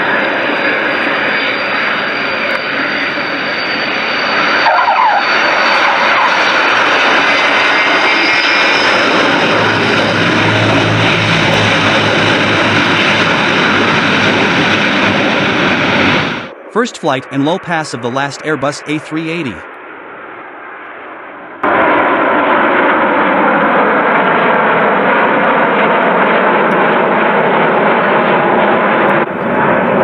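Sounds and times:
turboprop aircraft engines: 0.0s - 30.0s.

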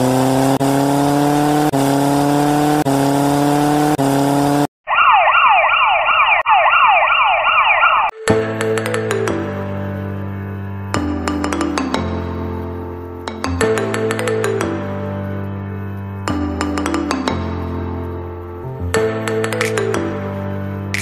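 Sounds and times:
engine revving: 0.0s - 4.7s
emergency siren whooping: 4.8s - 8.2s
music: 8.1s - 21.0s.

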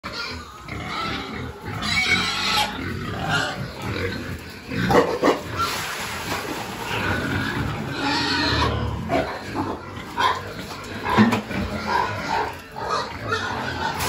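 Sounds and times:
pigs grunting: 0.0s - 14.0s.

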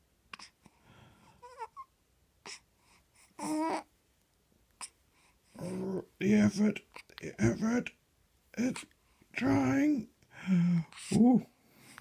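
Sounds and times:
baby cooing: 1.4s - 3.9s.

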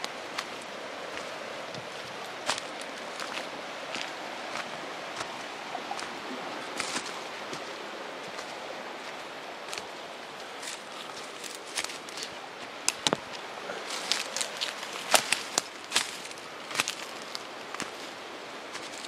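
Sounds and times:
footsteps crunching dry leaves: 0.0s - 19.0s
twigs snapping: 10.6s - 18.0s.

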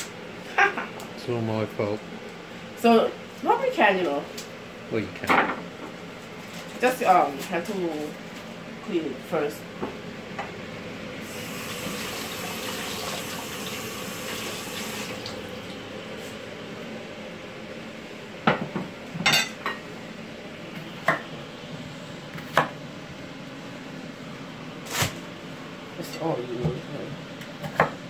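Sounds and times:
kitchen tap running: 11.2s - 15.8s.

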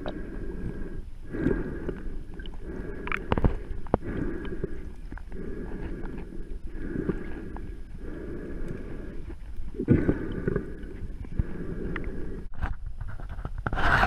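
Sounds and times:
underwater water sloshing: 0.0s - 12.5s
sharp underwater clicks: 1.4s - 5.4s.

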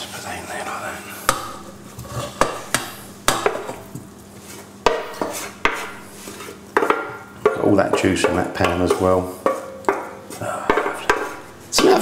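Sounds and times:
spoon knocking against a pot: 1.3s - 4.0s, 4.8s - 6.1s, 6.8s - 12.0s
wooden spoon scraping a tray: 1.3s - 6.9s, 8.8s - 12.0s.

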